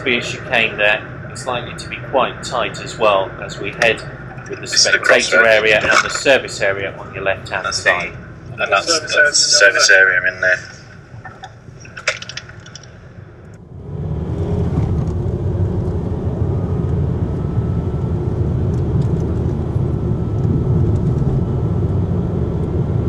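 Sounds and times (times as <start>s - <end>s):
faint steady whine: 0.0s - 14.3s
car engine and tyre rumble: 0.0s - 23.0s.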